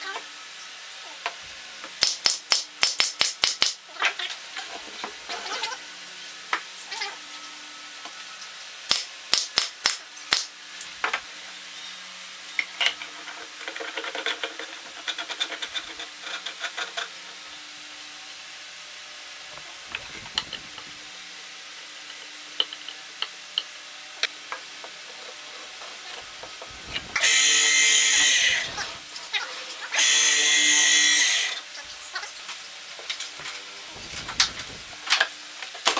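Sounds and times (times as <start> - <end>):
drum sander motor spinning: 19.5 - 21.1, 26.2 - 29.2, 33.4 - 35.3.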